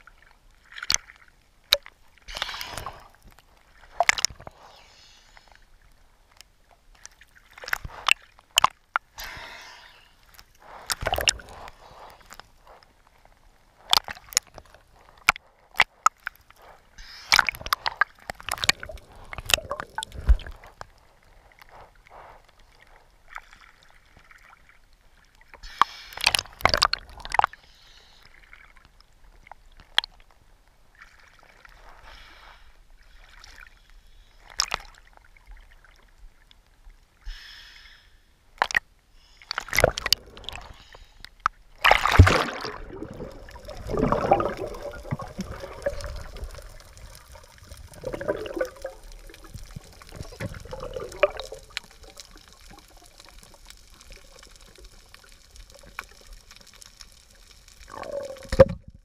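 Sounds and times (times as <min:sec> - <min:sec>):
water gurgling: 0:10.3 - 0:25.5, 0:39.5 - 0:40.8, 0:41.7 - 0:59.0
seawater sloshing and splashing: 0:41.8 - 0:55.0.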